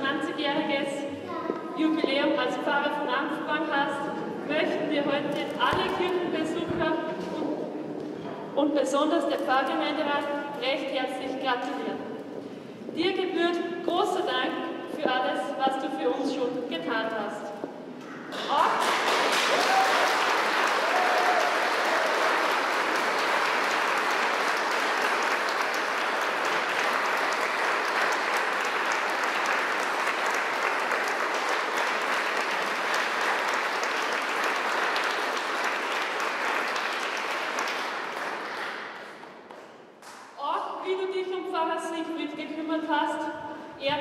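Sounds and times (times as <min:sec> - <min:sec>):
congregation applauding: 0:18.3 - 0:39.6.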